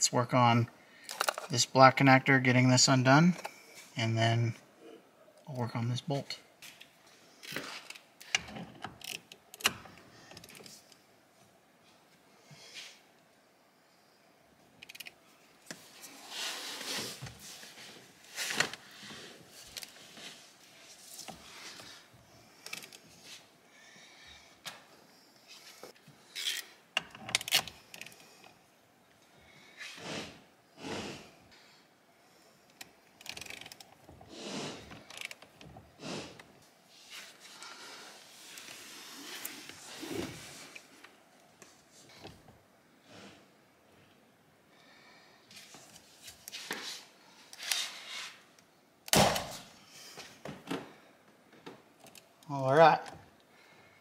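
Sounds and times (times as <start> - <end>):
ratchet creaks and clicks: 7.4 - 10.7, 14.8 - 15.1, 32.7 - 34.0, 35.0 - 35.5.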